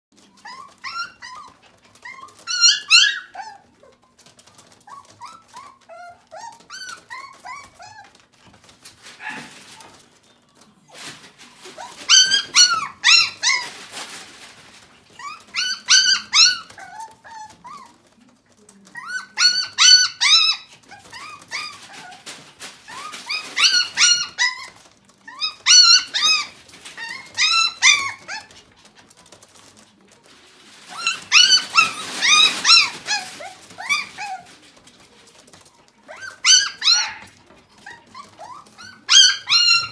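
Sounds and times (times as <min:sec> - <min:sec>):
puppy whining and yelping: 0:00.2 - 0:08.6, 0:11.7 - 0:13.8, 0:15.1 - 0:18.0, 0:18.9 - 0:22.3, 0:22.9 - 0:28.7, 0:30.9 - 0:34.6, 0:36.1 - 0:39.9.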